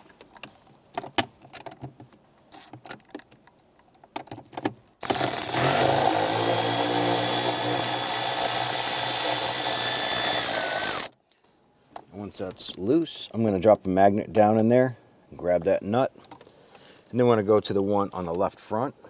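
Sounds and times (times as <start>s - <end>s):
power tool running: 5.0s - 11.2s.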